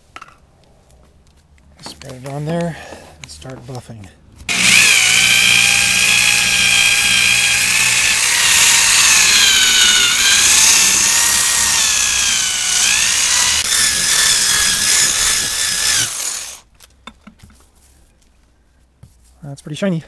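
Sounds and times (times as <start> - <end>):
buffing wheel polishing: 4.5 - 16.6
electric drill motor whine: 4.5 - 16.6.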